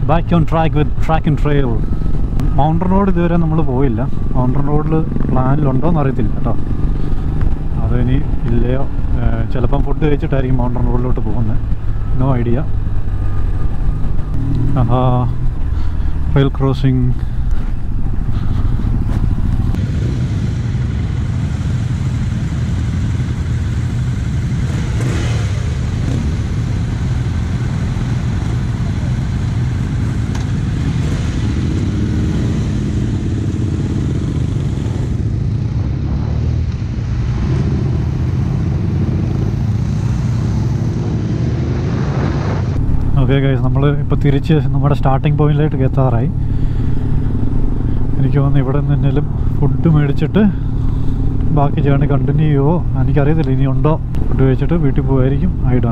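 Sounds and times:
motorcycle engines rumbling: 0.0s - 55.9s
wind rush on microphone: 16.9s - 22.3s.

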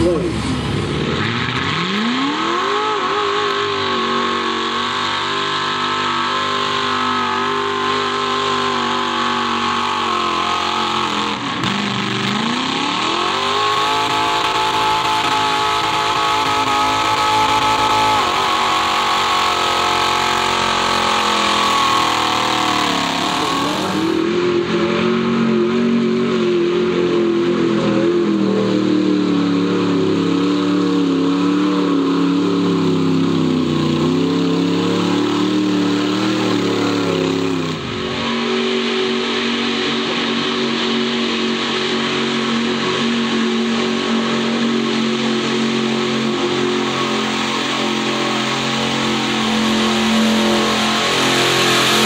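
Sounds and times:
engines revving at high rpm: 0.0s - 52.0s
wheels spinning through mud: 31.4s - 52.0s.

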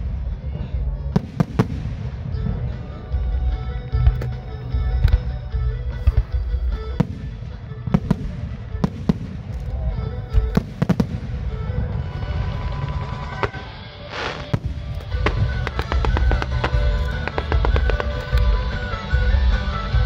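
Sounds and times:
music playing: 0.0s - 20.0s
firework shells bursting: 7.0s - 18.9s.

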